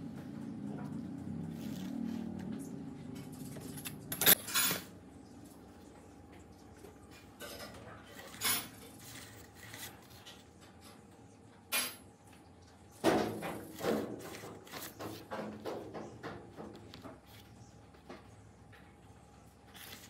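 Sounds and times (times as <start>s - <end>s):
hard objects knocking and clattering: 13.0s - 17.3s.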